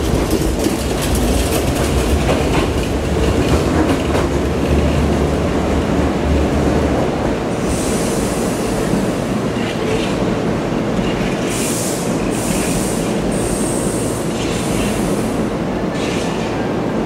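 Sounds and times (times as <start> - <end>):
train rumbling over track: 0.0 - 17.0.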